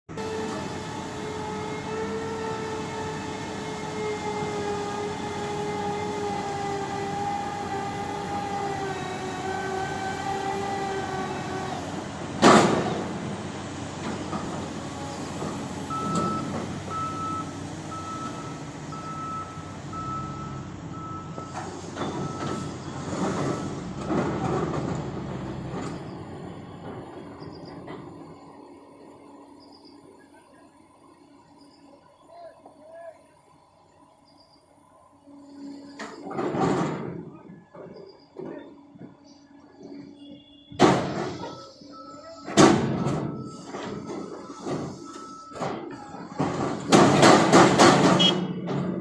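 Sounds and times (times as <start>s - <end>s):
heavy knocks: 46.4s - 49.0s.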